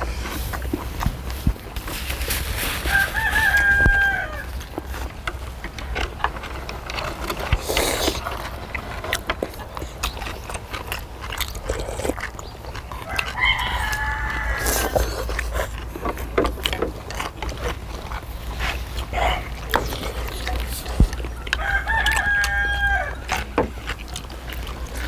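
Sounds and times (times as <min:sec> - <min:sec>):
rooster crowing: 0:02.8 - 0:04.5, 0:13.0 - 0:15.2, 0:21.5 - 0:23.4.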